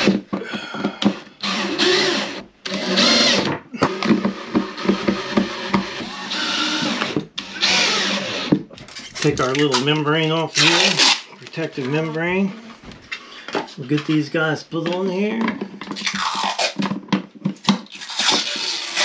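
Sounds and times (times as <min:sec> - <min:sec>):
cordless drill motor whirring: 0:00.8 - 0:08.6.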